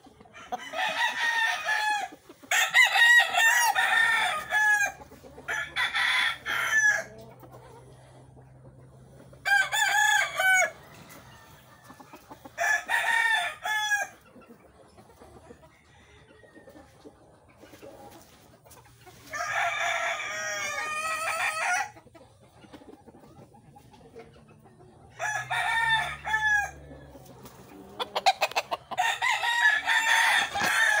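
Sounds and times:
roosters crowing: 0:00.0 - 0:07.4, 0:09.3 - 0:14.2, 0:15.7 - 0:16.8, 0:19.1 - 0:22.0, 0:25.1 - 0:31.0.

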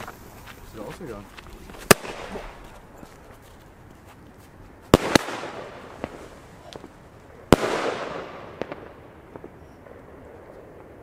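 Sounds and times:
firework bangs: 0:01.6 - 0:03.3, 0:04.8 - 0:11.0
small firework cracks: 0:01.7 - 0:11.0.

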